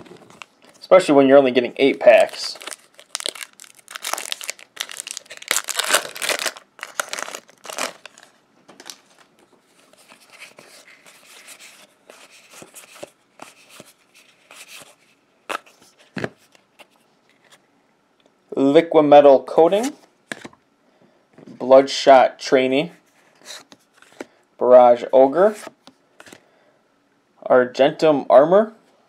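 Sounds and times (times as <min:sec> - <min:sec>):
cards rustling and flicking: 0:01.9 - 0:15.8
foil wrapper tearing and crinkling: 0:02.1 - 0:09.1.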